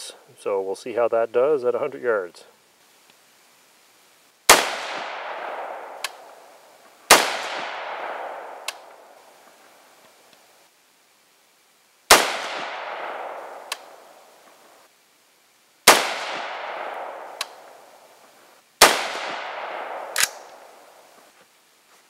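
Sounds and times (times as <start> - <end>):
rifle shots echoing: 4.5 - 9.2, 12.1 - 14.2, 15.8 - 18.0, 18.8 - 21.0
sharp click: 20.1 - 20.6.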